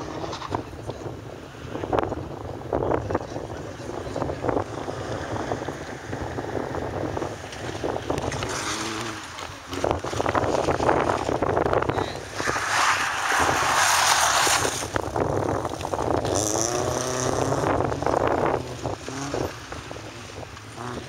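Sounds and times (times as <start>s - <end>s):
car engine revving: 3.4s - 21.0s
tyres scrubbing on concrete: 12.2s - 15.0s.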